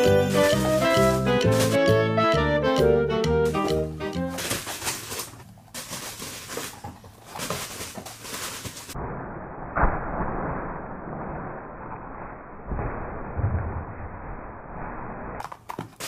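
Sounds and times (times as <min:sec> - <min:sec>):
bubble wrap crackling and popping: 0:00.0 - 0:02.2, 0:03.4 - 0:09.0.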